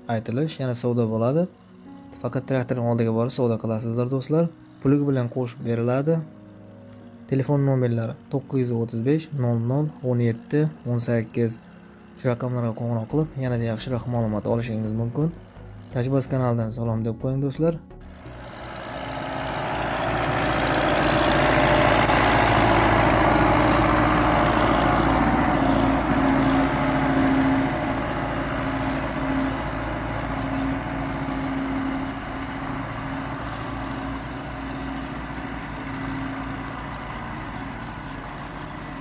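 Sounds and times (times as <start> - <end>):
tractor diesel engine under load: 7.9 - 17.0, 18.0 - 39.0.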